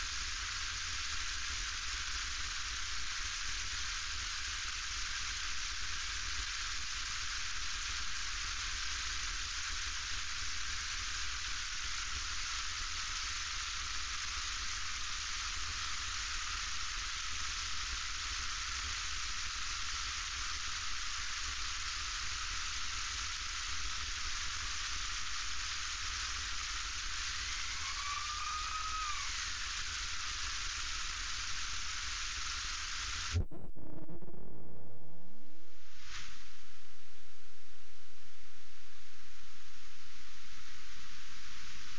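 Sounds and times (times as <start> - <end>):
low rumble: 33.3 - 37.0
rising and falling tone: 33.4 - 36.0.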